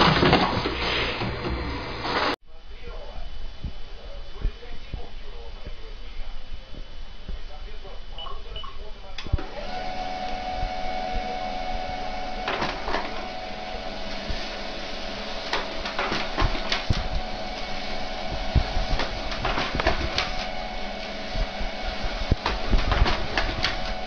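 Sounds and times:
printer motor whine: 9.2s - 24.0s
printer clicks and clacks: 12.2s - 24.0s.

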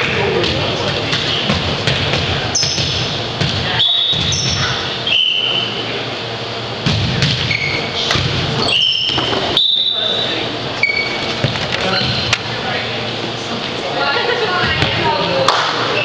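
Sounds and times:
echoing gym din: 0.0s - 13.1s
shoe squeaks: 2.5s - 3.0s, 3.8s - 5.8s, 7.4s - 12.4s.

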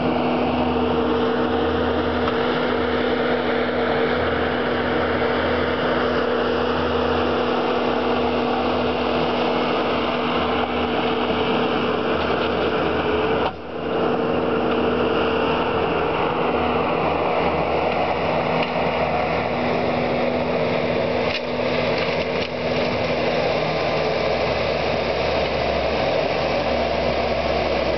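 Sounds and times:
loader engine running: 0.0s - 27.9s.

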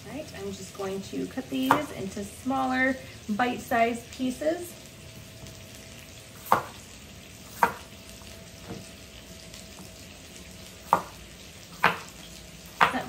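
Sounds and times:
chicken sizzling in a skillet: 0.0s - 13.0s
knife chopping on cutting board: 1.6s - 1.9s, 6.4s - 6.8s, 7.5s - 7.9s, 10.8s - 11.2s, 11.8s - 13.0s.

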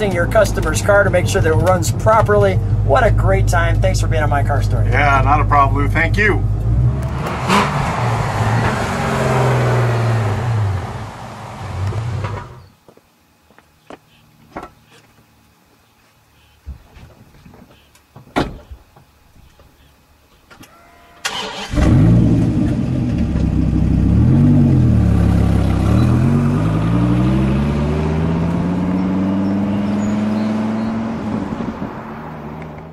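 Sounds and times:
car engine starting and revving: 5.8s - 12.6s, 21.2s - 32.9s.

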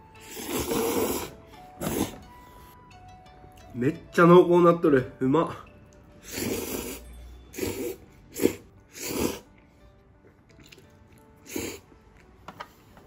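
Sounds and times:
person slurping noodles: 0.2s - 2.2s, 6.2s - 9.5s, 11.4s - 11.9s.

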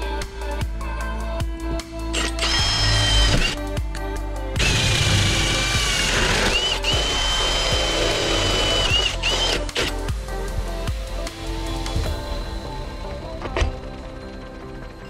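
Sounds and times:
background music: 0.0s - 15.0s
cordless drill motor whining: 2.1s - 3.6s, 4.6s - 10.0s.

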